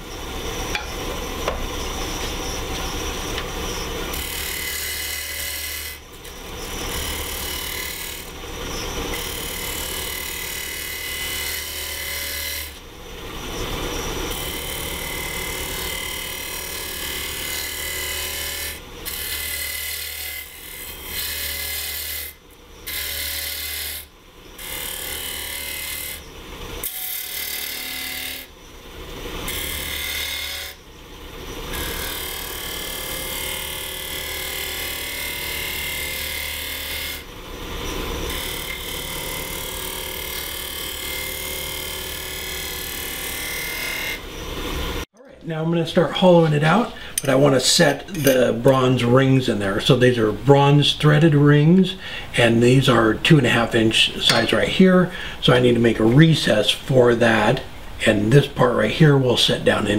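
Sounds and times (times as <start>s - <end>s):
lathe tool scraping wood: 0.0s - 12.8s, 13.4s - 28.5s, 29.5s - 30.8s, 31.7s - 44.9s.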